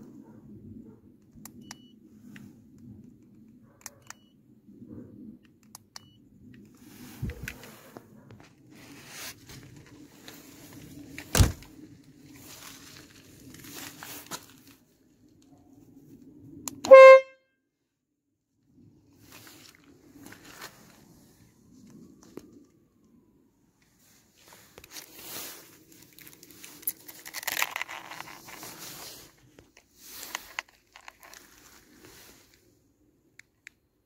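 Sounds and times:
rustling: 0:06.8 - 0:14.8, 0:23.9 - 0:32.7
car horn blast: 0:16.8 - 0:17.4.

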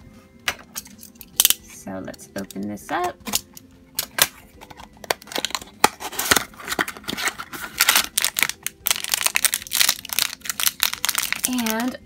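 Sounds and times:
wrapper tearing and crinkling: 0:05.0 - 0:12.0.

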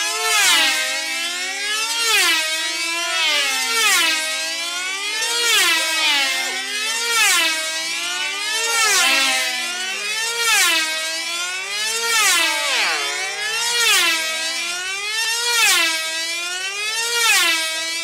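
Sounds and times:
model engine whining: 0:00.0 - 0:18.0.

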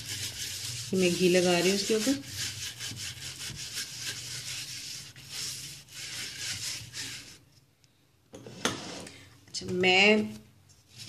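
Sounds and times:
brush bristles swishing on metal: 0:00.0 - 0:07.4.

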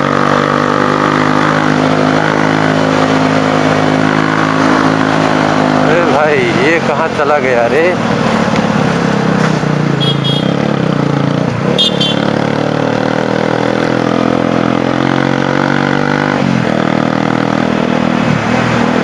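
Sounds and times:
motorcycle engine running: 0:07.7 - 0:18.0.

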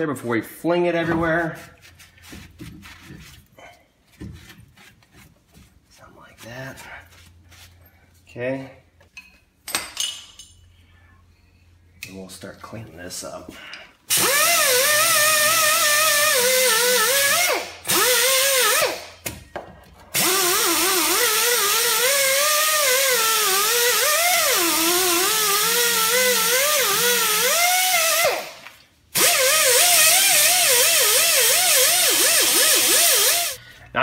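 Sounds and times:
air die grinder whine: 0:29.2 - 0:33.6.

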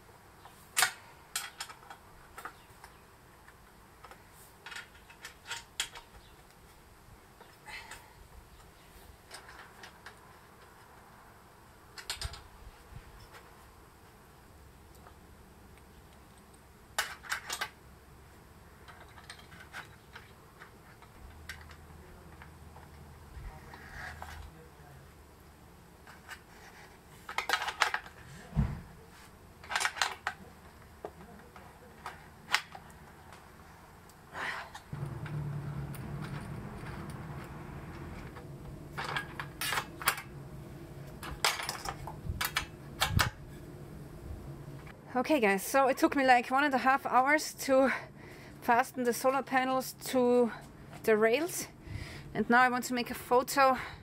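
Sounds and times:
small metal parts clinking: 0:35.9 - 0:40.4, 0:41.1 - 0:43.3.

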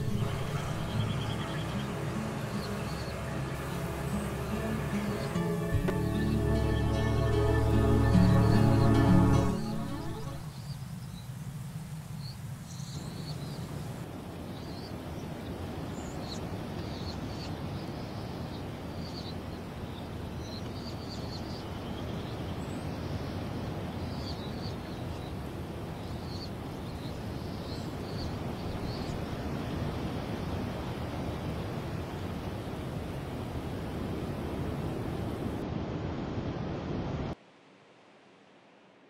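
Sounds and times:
steady rushing noise: 0:00.0 - 0:10.5
birds chirping: 0:00.0 - 0:10.8.

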